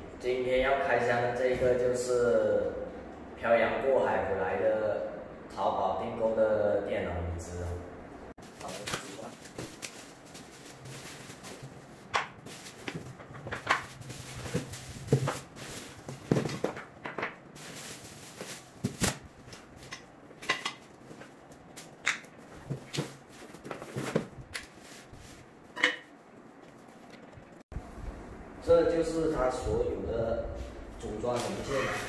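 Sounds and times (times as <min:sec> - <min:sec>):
cardboard and plastic rustling: 0:08.4 - 0:25.5.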